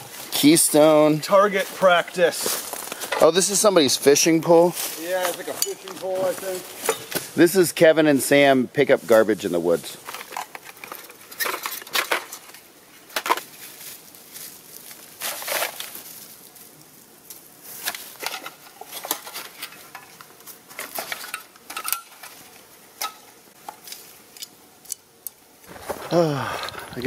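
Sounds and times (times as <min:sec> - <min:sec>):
cans and plastic crinkling: 0:04.8 - 0:07.3, 0:09.8 - 0:16.3, 0:17.7 - 0:24.5.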